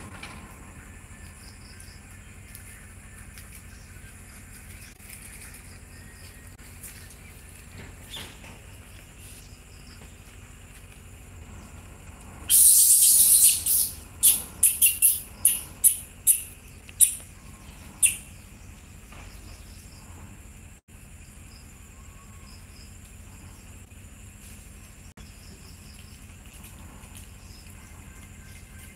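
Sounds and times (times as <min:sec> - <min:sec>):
high-pitched insect buzzing: 0:12.5 - 0:17.2.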